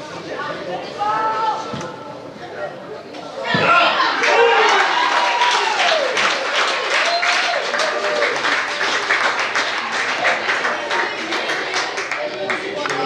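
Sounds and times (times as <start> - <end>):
people shouting: 3.5 - 6.1
spectators clapping: 4.2 - 13.0.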